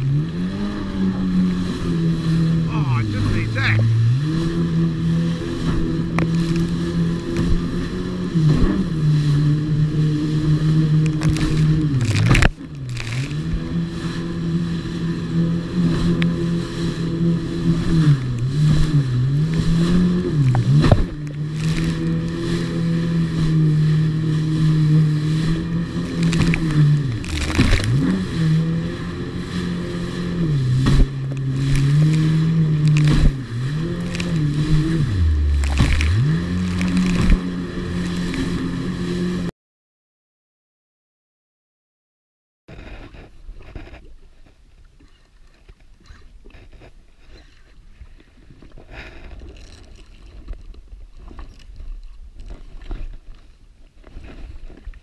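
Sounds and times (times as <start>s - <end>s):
hull hitting waves: 0.0s - 39.5s
jet ski engine: 0.0s - 39.5s, 42.7s - 55.0s.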